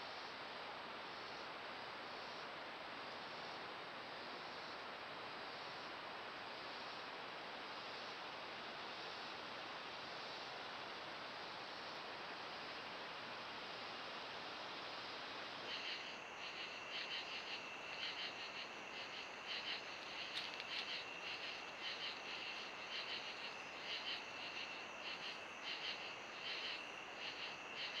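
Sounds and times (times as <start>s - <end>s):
steady hiss: 0.0s - 28.0s
insects chirping: 7.7s - 28.0s.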